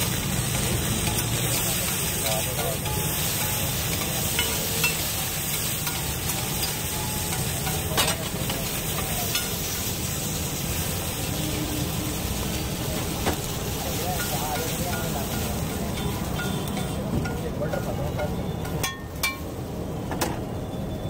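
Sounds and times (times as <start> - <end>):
vegetables sizzling on a griddle: 0.0 - 21.0
metal spatula scraping a griddle: 0.6 - 10.1.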